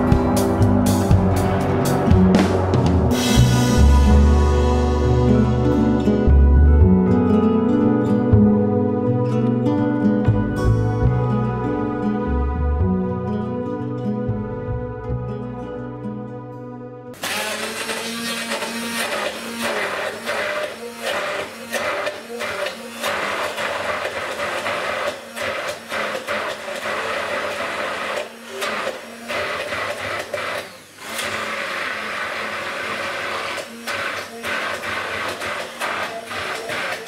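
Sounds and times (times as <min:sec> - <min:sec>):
stick blender running: 0:17.2 - 0:37.0.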